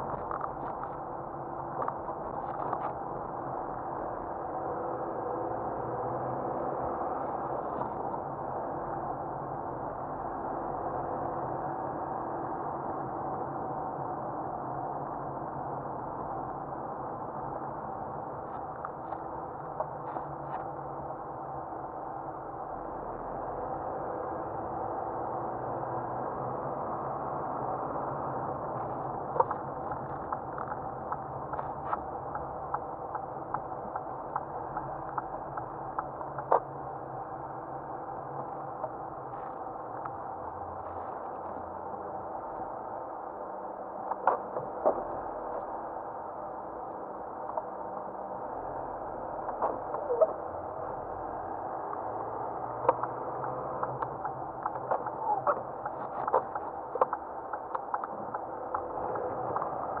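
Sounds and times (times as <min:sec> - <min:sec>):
clicks and crackles over snow: 0:00.0 - 0:03.3
car engine and tyre drone: 0:00.0 - 1:00.0
turn signal ticking: 0:28.9 - 0:37.5, 0:51.8 - 1:00.0.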